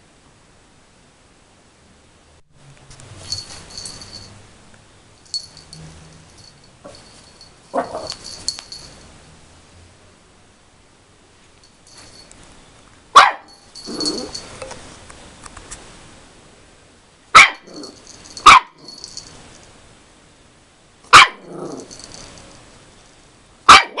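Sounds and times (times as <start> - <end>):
puppy barking: 7.7 - 8.5, 13.2 - 14.4, 17.3 - 19.0, 21.1 - 22.0, 23.7 - 24.0
puppy growling low: 13.8 - 14.5, 21.4 - 22.1.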